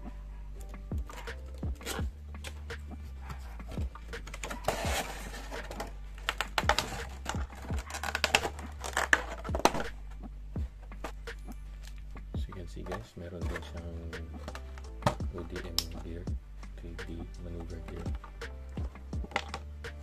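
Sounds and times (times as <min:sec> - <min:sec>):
plastic tray crinkling and clicking: 0:04.2 - 0:10.0, 0:12.8 - 0:13.8, 0:19.3 - 0:19.7.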